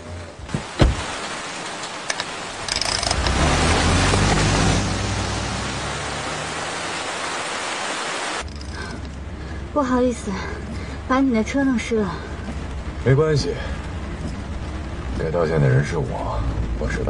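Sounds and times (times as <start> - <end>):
heavy rain pouring: 0.0 - 17.0
thump: 0.5 - 1.0
car engine pulling away: 2.5 - 9.4.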